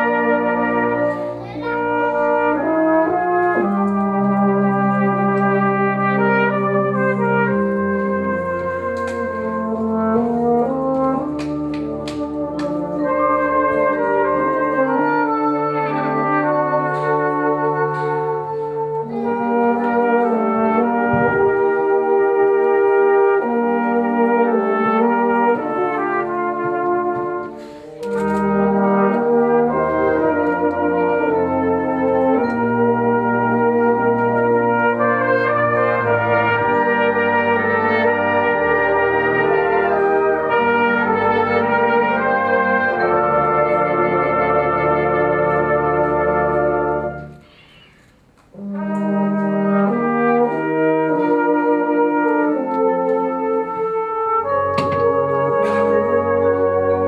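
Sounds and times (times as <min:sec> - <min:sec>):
brass band playing: 0:00.0 - 0:57.0
euphonium solo: 0:00.0 - 0:57.0
trumpet solo: 0:00.0 - 0:57.0.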